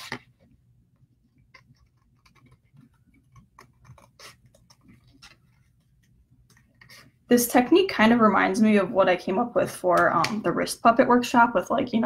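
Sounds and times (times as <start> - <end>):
scissors cutting cardboard: 1.6 - 5.4.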